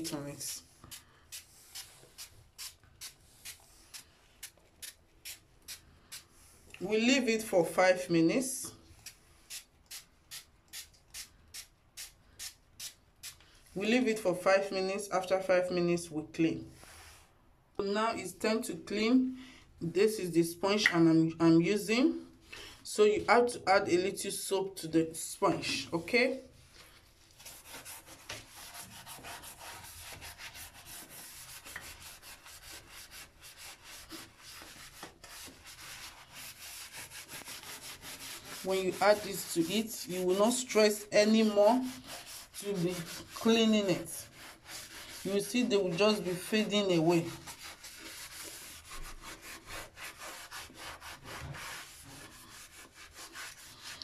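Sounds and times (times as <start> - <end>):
sponge scrubbing tiles: 26.7 - 54.0.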